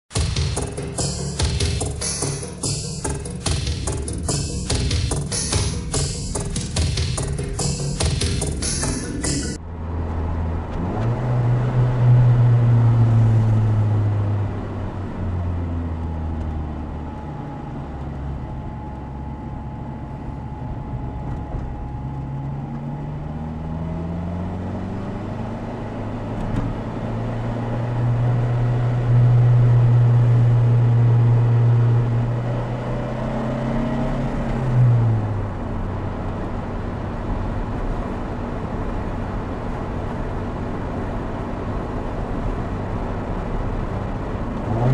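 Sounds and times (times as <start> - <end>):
sports car engine revving: 22.3 - 35.9, 43.6 - 44.9.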